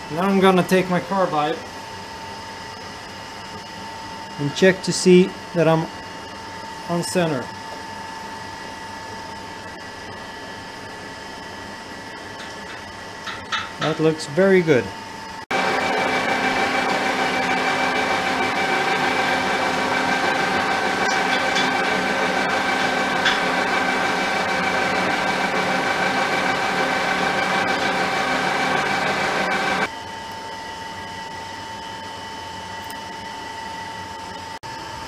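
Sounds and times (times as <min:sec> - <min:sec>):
steady background hum: 0:00.0 - 0:15.6
lathe drilling steel whine: 0:00.0 - 0:32.6.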